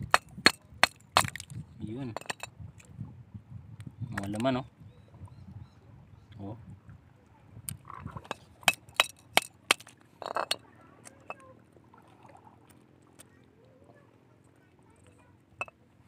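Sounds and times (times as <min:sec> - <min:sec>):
hard objects clinking together: 0:00.0 - 0:01.5, 0:02.1 - 0:02.5, 0:08.3 - 0:10.6.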